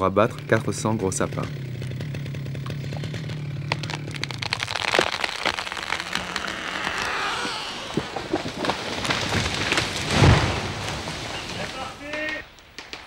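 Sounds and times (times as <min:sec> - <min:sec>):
chainsaw idling: 0:00.0 - 0:09.3
tree wood cracking and snapping: 0:01.5 - 0:13.0
tree crown rushing through branches: 0:03.8 - 0:12.4.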